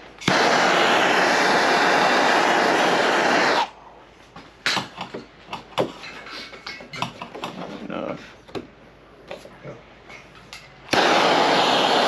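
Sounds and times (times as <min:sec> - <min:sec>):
torch hissing: 0:00.0 - 0:03.8, 0:10.9 - 0:12.0.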